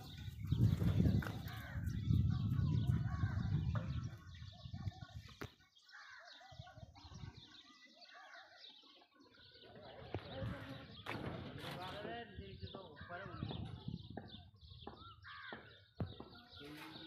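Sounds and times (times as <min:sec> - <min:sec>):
low rumble on microphone: 0:00.0 - 0:05.3
birds chirping: 0:00.0 - 0:17.0.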